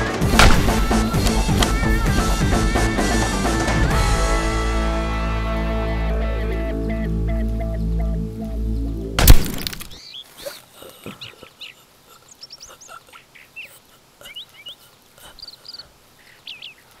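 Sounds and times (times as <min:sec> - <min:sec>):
music: 0:00.0 - 0:09.2
birds chirping: 0:00.0 - 0:17.0
loud gunshot with echo: 0:00.3 - 0:01.4.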